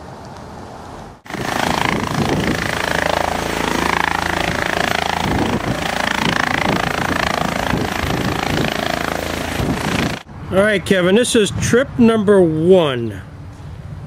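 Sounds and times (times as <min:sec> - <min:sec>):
helicopter hovering: 0:01.2 - 0:10.3.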